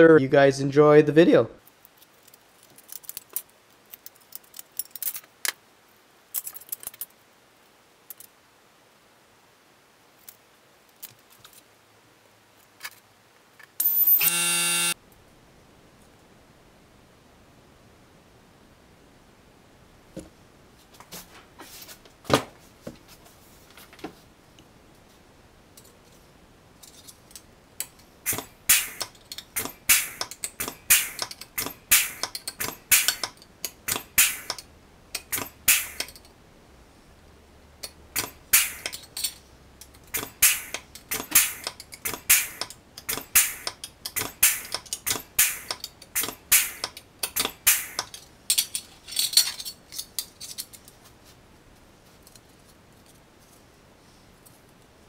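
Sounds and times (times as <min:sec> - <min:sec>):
metal parts clinking: 0:02.1 - 0:05.3, 0:06.3 - 0:07.1, 0:38.2 - 0:50.8
sharp metallic clicks: 0:27.8 - 0:36.3, 0:37.8 - 0:48.2.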